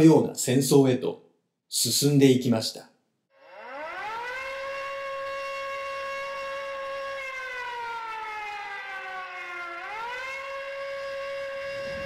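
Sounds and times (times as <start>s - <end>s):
air-raid siren wailing: 3.4s - 12.0s.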